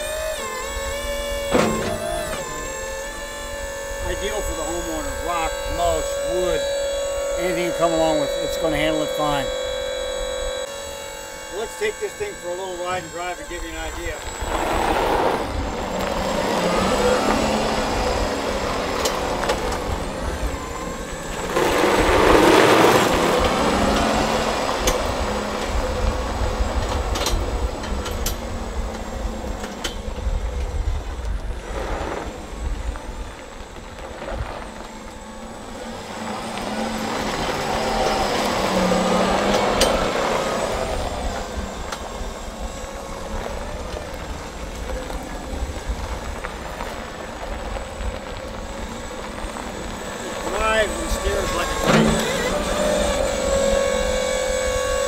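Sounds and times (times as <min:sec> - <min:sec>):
electric tractor driving on gravel: 0:00.0 - 0:55.0.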